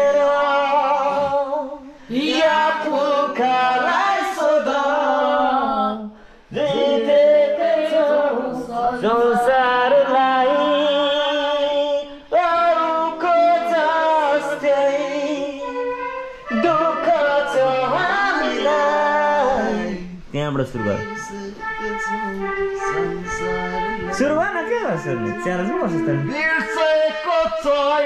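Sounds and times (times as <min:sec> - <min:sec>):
man singing into microphone: 0:00.0 - 0:04.7, 0:06.5 - 0:28.0
singer breathing: 0:01.8 - 0:02.2, 0:06.1 - 0:06.5, 0:16.1 - 0:16.5.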